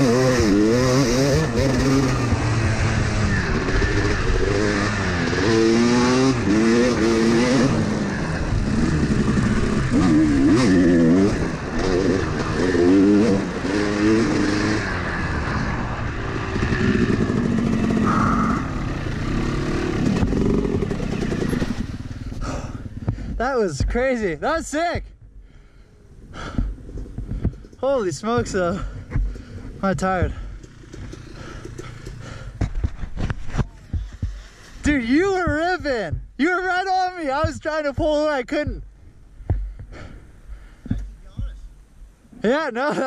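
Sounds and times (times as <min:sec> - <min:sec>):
dirt bike engine revving: 0:00.0 - 0:24.7, 0:26.2 - 0:38.8.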